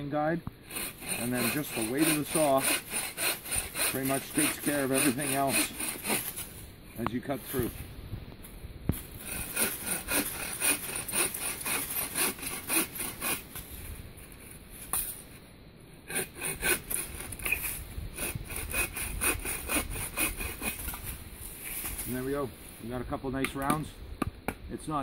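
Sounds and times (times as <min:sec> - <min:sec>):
saw cutting through branch: 0:00.6 - 0:06.6, 0:09.0 - 0:13.8, 0:16.0 - 0:22.3.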